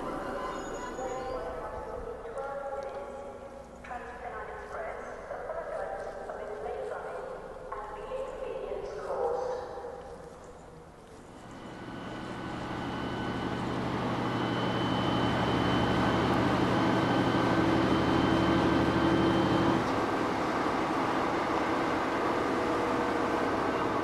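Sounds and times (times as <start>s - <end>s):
faint high whines: 0.0s - 2.2s, 11.2s - 24.0s
train rumble and hiss: 0.0s - 2.3s, 11.3s - 24.0s
low hum: 0.0s - 4.4s, 10.6s - 24.0s.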